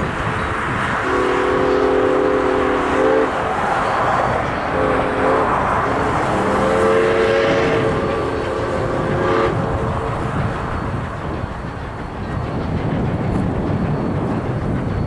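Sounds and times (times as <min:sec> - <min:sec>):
low rumble of train: 0:00.0 - 0:15.0
steam whistle blasts: 0:01.0 - 0:09.9.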